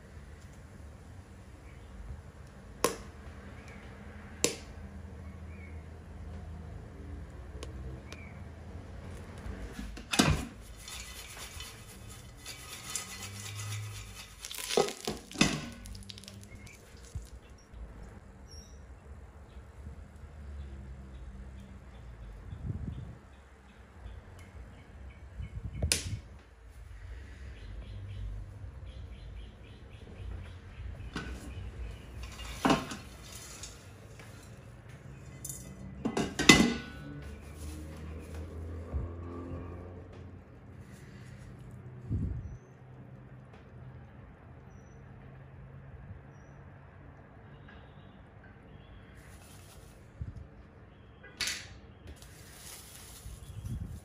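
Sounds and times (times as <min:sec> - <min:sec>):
metal pot clanking: 0:10.0 - 0:16.3, 0:35.3 - 0:37.1
popcorn rattling in pot: 0:10.3 - 0:17.4.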